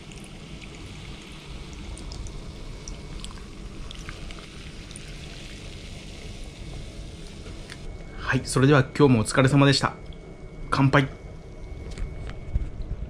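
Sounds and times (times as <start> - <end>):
drink pouring into cup: 0.0 - 7.8
fizz and ice crackling: 0.0 - 10.2.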